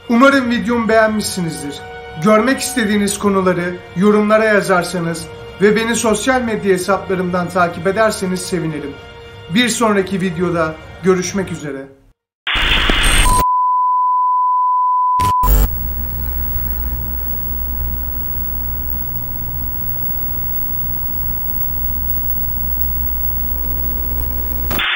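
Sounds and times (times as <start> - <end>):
burst of static: 12.5 - 13.4, 15.2 - 24.9
crackle: 12.5 - 13.4, 15.2 - 24.9
steady high beep: 15.2 - 24.9
low electrical hum: 15.4 - 24.8.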